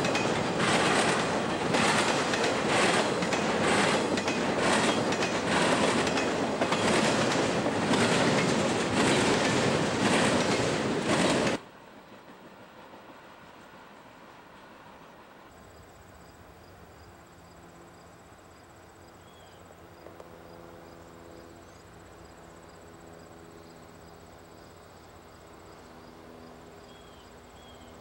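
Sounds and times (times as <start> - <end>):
distant locomotive engine hum: 0.0 - 28.0
insects chirping: 13.9 - 28.0.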